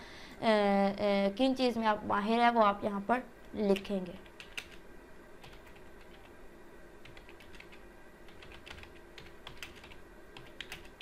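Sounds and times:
keyboard typing clicks: 3.8 - 4.8, 7.0 - 11.0.

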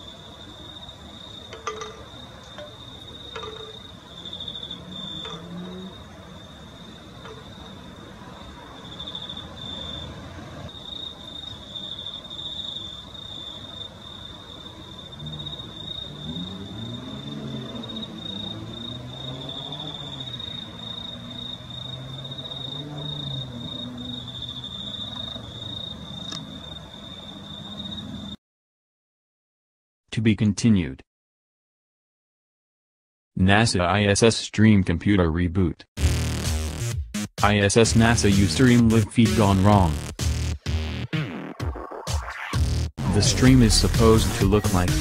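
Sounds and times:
crickets chirping: 0.0 - 28.4.

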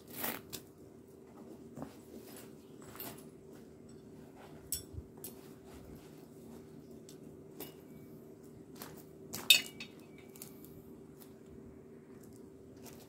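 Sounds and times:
faint steady hum: 0.0 - 13.0
metal tent pegs clinking: 8.8 - 10.5.

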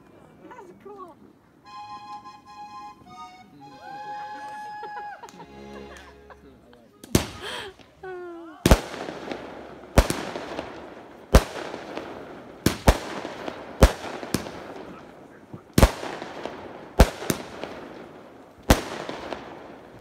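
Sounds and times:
fireworks bangs echoing: 7.0 - 8.0, 8.6 - 20.0.

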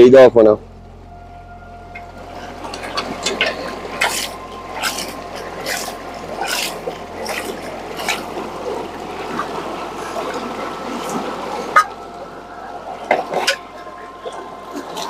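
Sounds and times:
water splashing: 0.6 - 15.0
water and soil sloshing in pan: 2.4 - 12.2.

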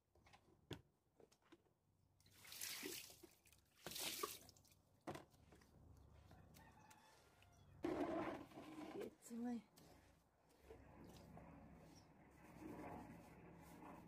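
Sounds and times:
water splashing onto tiled steps: 2.3 - 4.8.

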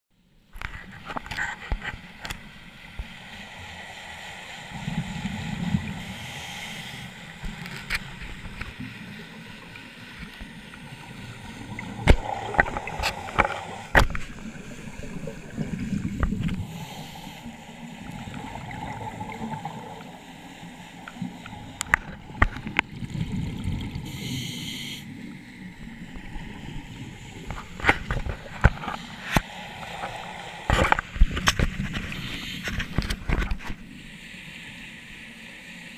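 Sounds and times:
regulator inhale hiss: 3.4 - 7.5, 16.5 - 18.5, 20.0 - 22.1, 24.0 - 25.4, 32.0 - 32.8
exhaled bubbles gurgling: 10.4 - 24.5.

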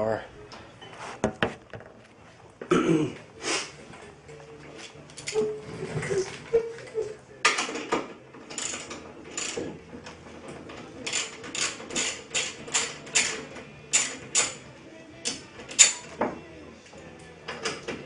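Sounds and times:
ratchet wrench clicking: 11.0 - 14.6, 15.2 - 16.1.

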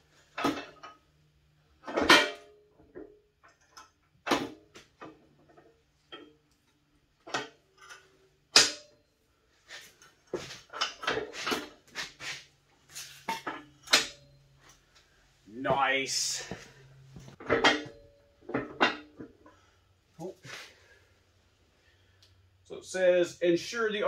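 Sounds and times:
metal lift arms clanking: 16.1 - 19.3.

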